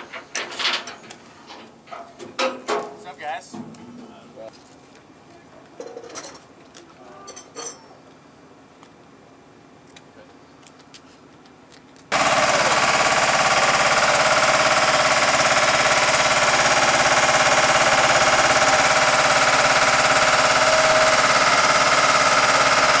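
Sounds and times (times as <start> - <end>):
fast-rattling machine: 12.1 - 23.0.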